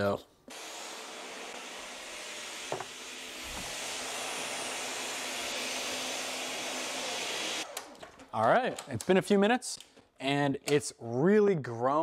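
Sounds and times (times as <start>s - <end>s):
blender motor running: 0.5s - 8.0s.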